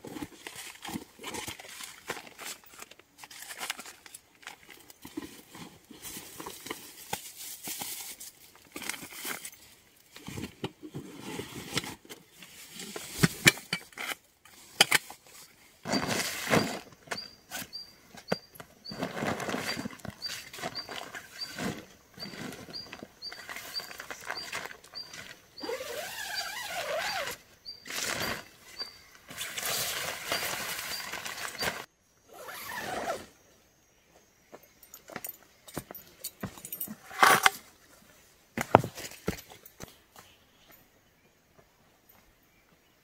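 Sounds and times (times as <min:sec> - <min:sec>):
small bird chirping: 0:17.1 - 0:19.0, 0:19.6 - 0:29.3.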